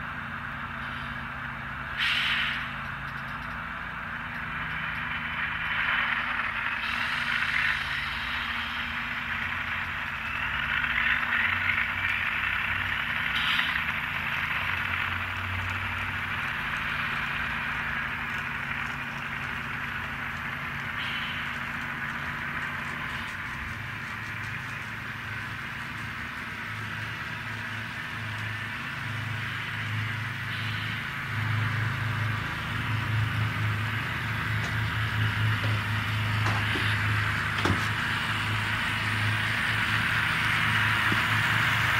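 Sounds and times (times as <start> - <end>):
model train rolling on track: 0.0 - 41.9.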